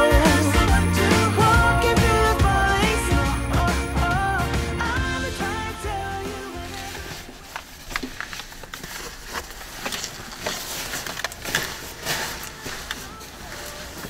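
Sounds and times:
background music: 0.0 - 7.4
bags rustling and gear tapping: 6.6 - 14.0.

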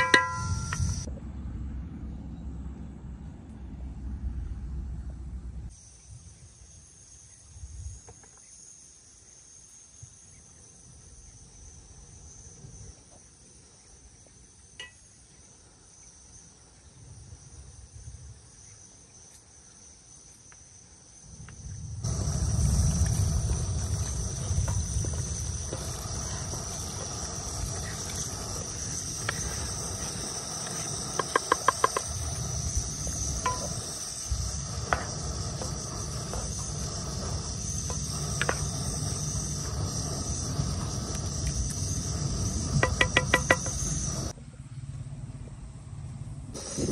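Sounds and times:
insects chirring: 0.0 - 1.1, 5.7 - 44.6, 45.7 - 46.9
low rumble: 0.0 - 5.7, 21.7 - 46.9.

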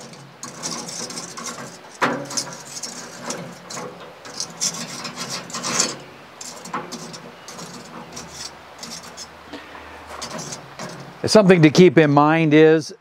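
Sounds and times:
metal tool scraping charcoal: 0.0 - 11.4.

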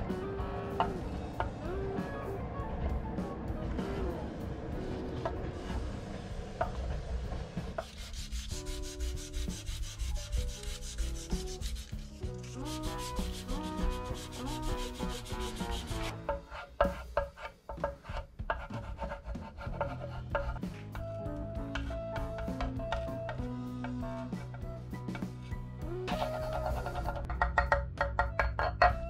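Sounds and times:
sandpaper rubbing on wood: 7.8 - 16.1.

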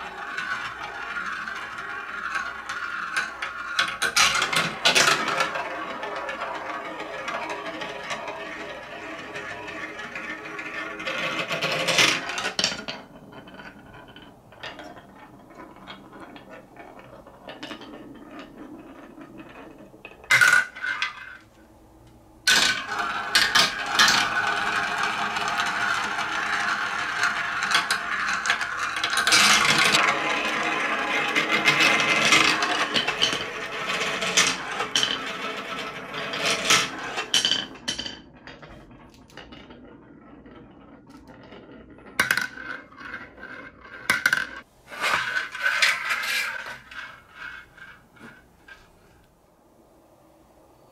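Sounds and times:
plastic balls rolling and clattering: 0.0 - 49.4
balls rolling down wooden slope: 0.0 - 50.9.

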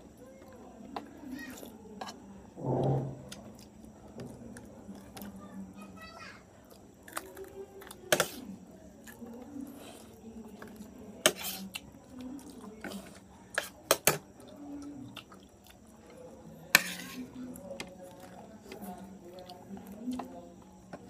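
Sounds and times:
cutlery clinking on plates: 16.7 - 17.3.

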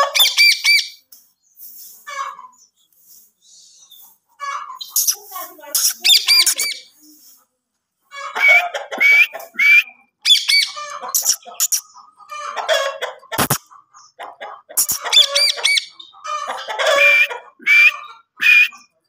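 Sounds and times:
parakeet squawking: 0.1 - 1.0, 4.4 - 6.9, 10.2 - 12.8, 13.4 - 13.6, 14.7 - 18.9.

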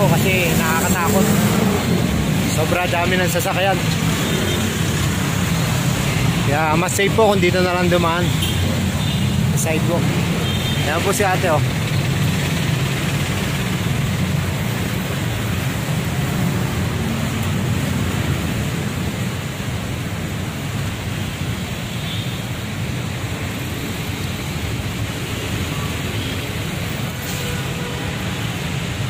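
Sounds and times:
road traffic passing: 0.0 - 29.0.

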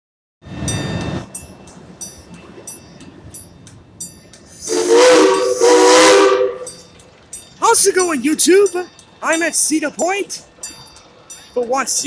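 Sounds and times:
bell ringing: 0.6 - 12.0
steam locomotive whistle chord: 4.5 - 6.9.

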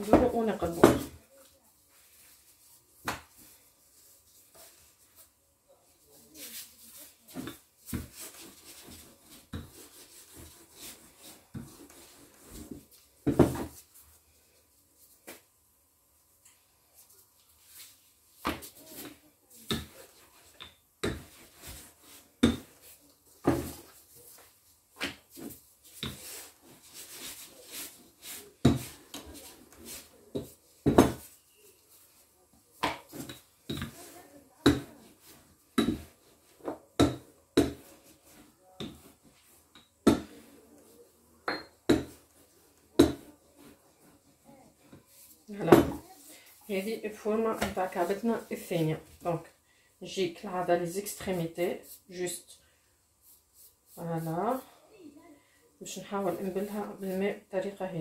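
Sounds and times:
rolling pin thudding on countertop: 0.0 - 1.2, 13.2 - 13.8, 28.6 - 28.9, 30.3 - 31.3, 32.8 - 34.0, 34.6 - 34.9, 35.8 - 37.9, 45.6 - 46.0.

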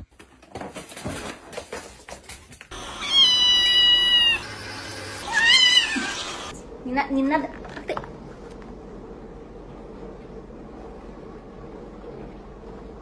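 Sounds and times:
kitten meowing: 3.0 - 4.4, 5.3 - 6.4.

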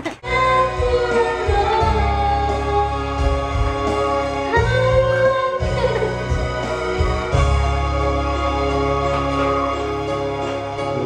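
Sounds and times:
karaoke backing track with bass: 0.0 - 11.0
woman singing into microphone: 0.2 - 3.9, 4.5 - 6.3.

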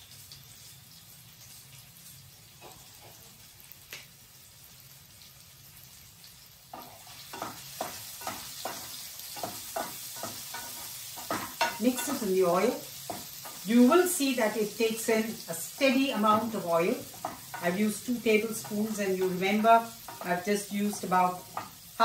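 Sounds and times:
seeds frying in oil: 0.0 - 22.0
wooden spatula scraping a pan: 6.8 - 21.9.

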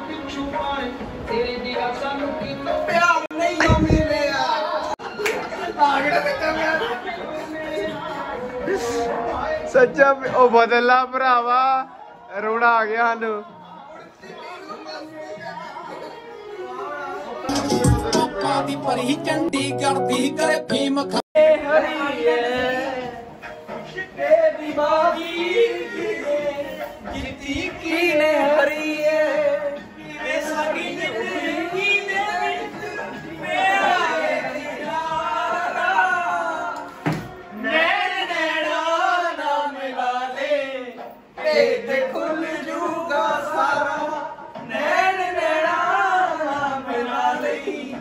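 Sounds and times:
person singing: 17.4 - 39.1.

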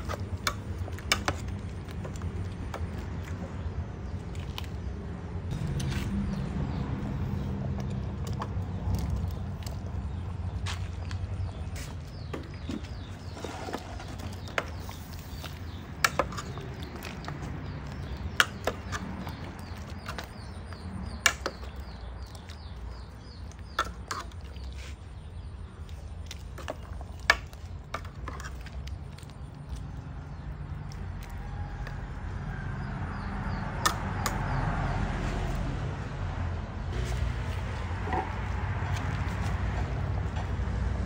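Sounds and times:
pot of curry cooking: 5.5 - 25.0.

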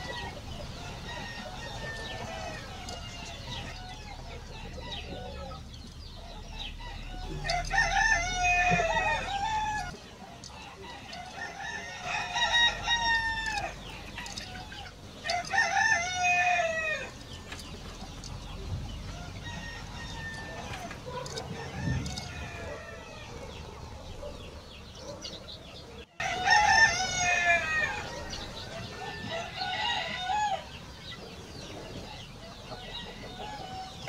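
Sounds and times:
roosters crowing: 0.0 - 34.0.

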